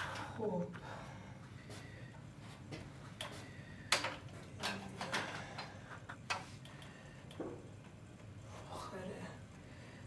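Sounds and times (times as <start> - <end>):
plastic inhalers clicking and knocking: 3.2 - 7.6.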